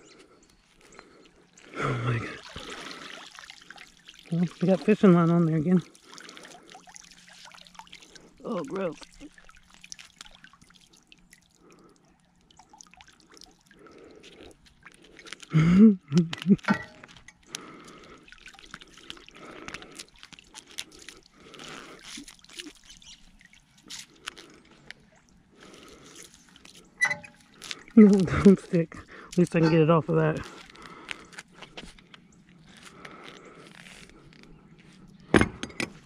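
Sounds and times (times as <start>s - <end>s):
water dripping and trickling: 0.4s - 34.5s
wet weed being handled: 14.2s - 18.0s, 19.0s - 35.1s.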